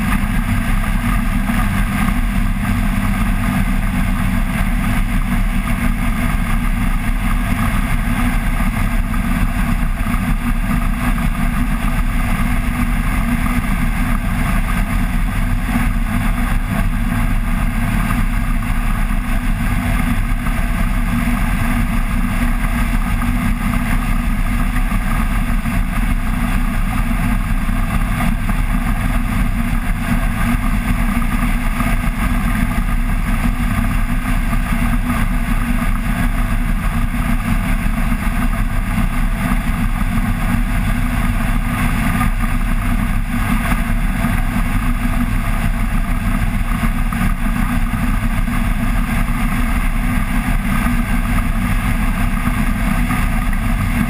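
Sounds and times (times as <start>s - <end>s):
aircraft engine and propeller drone: 0.0s - 54.0s.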